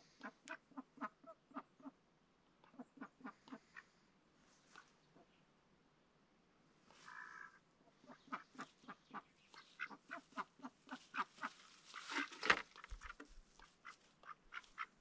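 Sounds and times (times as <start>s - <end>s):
ducks quacking: 0.0s - 2.0s, 2.6s - 4.0s, 6.9s - 15.0s.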